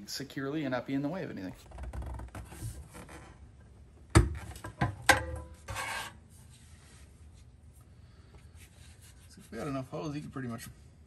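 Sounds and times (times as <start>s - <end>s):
plastic rubbing scrape: 5.6s - 7.0s.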